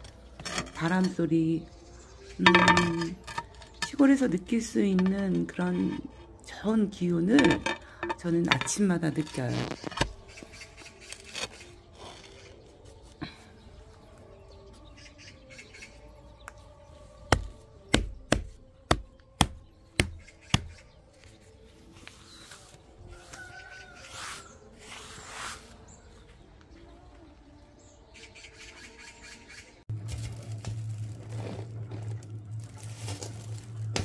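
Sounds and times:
faint birdsong: 0:00.0 - 0:34.0.

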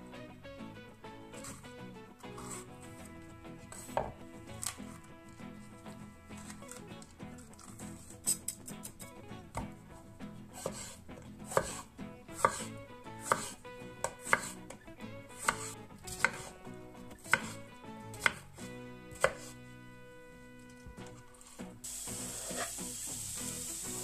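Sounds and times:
knife slicing pepper on board: 0:01.4 - 0:05.0, 0:06.4 - 0:09.8, 0:10.6 - 0:19.6, 0:22.2 - 0:22.8
blade knocking on wooden board: 0:03.8 - 0:04.2.

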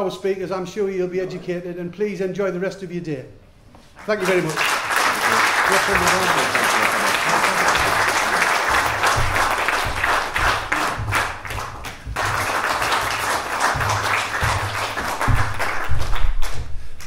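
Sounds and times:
audience applauding: 0:04.0 - 0:16.6.

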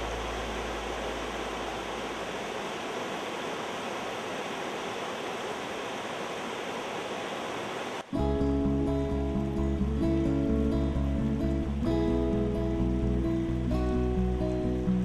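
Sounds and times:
stream rapids rushing: 0:00.0 - 0:08.2
music: 0:08.1 - 0:15.0.

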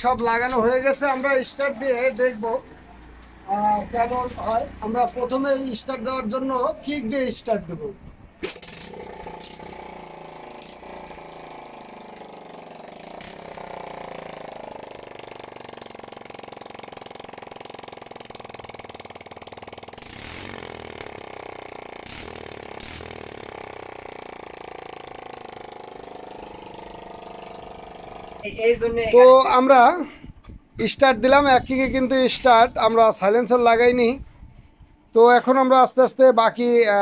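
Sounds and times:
motorcycle engine running: 0:00.9 - 0:06.2, 0:08.6 - 0:28.6.

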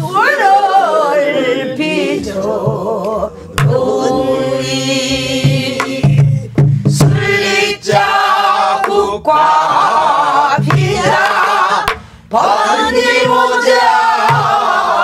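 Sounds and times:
voices singing folk song: 0:00.0 - 0:15.0
barrel drum strokes: 0:10.6 - 0:12.1, 0:12.7 - 0:15.0.

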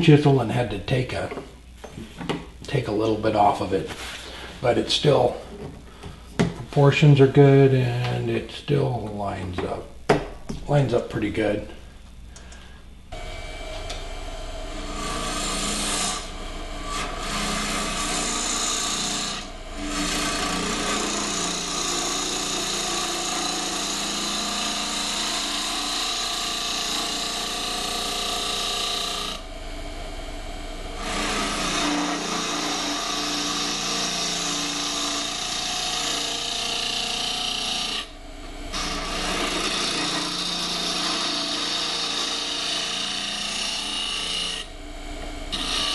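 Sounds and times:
lathe motor hum: 0:13.1 - 0:45.9
gouge scraping wood on lathe: 0:15.0 - 0:16.2, 0:16.9 - 0:29.4, 0:31.0 - 0:38.1, 0:38.7 - 0:44.7, 0:45.5 - 0:45.9.

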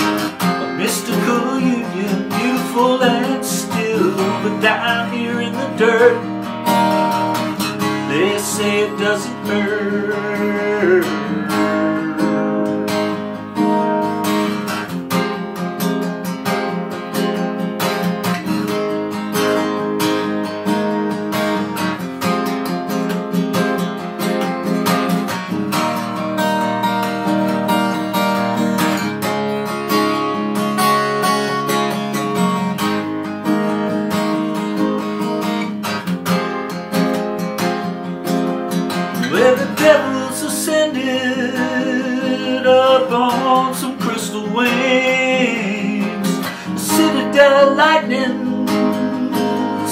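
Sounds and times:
acoustic guitar strumming: 0:00.0 - 0:49.9
man singing: 0:00.4 - 0:06.4, 0:07.9 - 0:13.3, 0:39.2 - 0:49.9.

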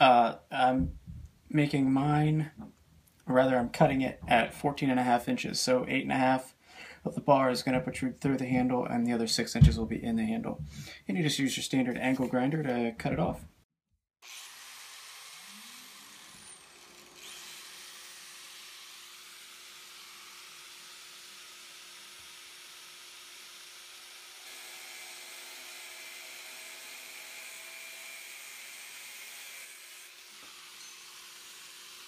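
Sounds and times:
grinder cutting steel bar: 0:14.2 - 0:32.0
angle grinder whine: 0:14.4 - 0:19.5, 0:29.6 - 0:32.0.

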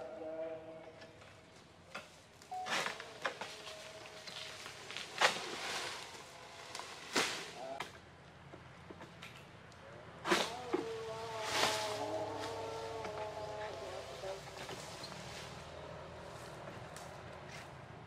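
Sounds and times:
sickle cutting palm frond: 0:02.4 - 0:07.9, 0:10.2 - 0:17.7.

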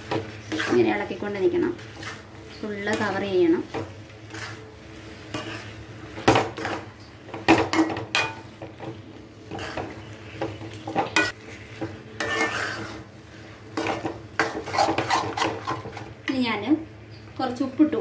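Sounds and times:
spatula scraping metal pan: 0:00.1 - 0:01.1, 0:01.8 - 0:03.2, 0:04.2 - 0:04.7, 0:05.3 - 0:06.8, 0:09.5 - 0:10.0, 0:12.2 - 0:13.1, 0:13.8 - 0:16.0.

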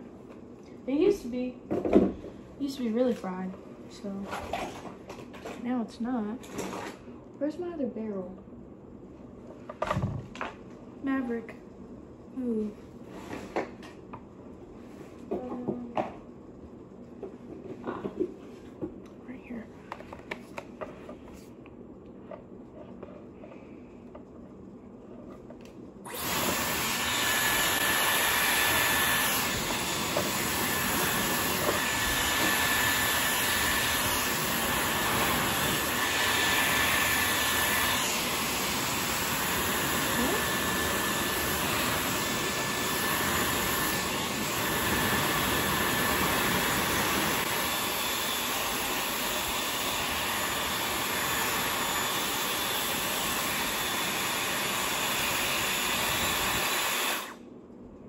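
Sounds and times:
hair styler blowing air: 0:26.0 - 0:57.4.

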